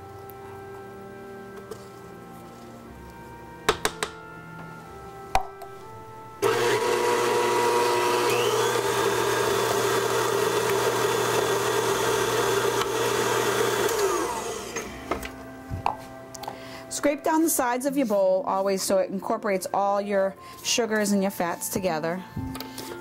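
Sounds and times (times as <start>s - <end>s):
electric stand mixer running: 6.4s - 15.0s.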